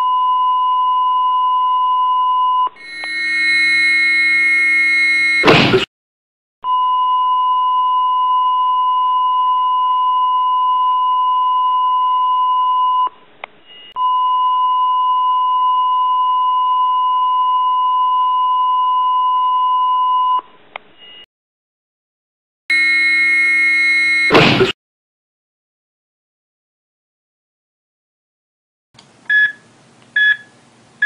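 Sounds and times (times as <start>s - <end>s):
monitor flatline tone: 2.8s - 5.8s, 22.7s - 24.4s.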